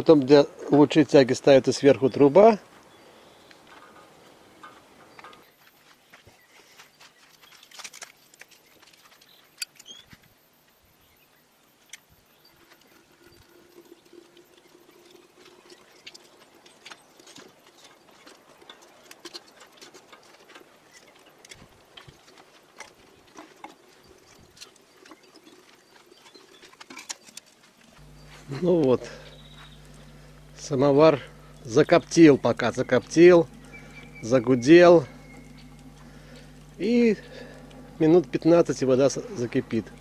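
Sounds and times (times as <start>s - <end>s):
kindling crackling: 27.8s - 40.0s.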